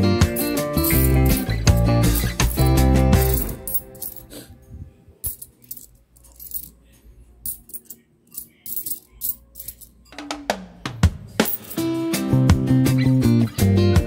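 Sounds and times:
guitar background music: 0.0s - 4.0s, 11.3s - 14.0s
coins clinking: 0.2s - 4.5s, 5.2s - 6.8s, 7.4s - 10.1s, 11.4s - 11.9s.

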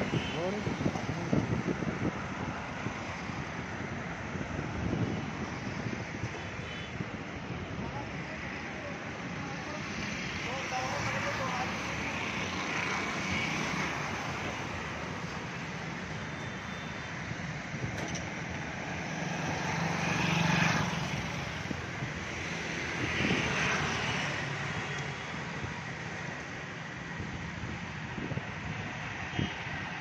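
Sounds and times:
vehicles passing close: 0.0s - 6.6s, 7.4s - 30.0s
traffic engine and tyre noise: 0.0s - 30.0s.

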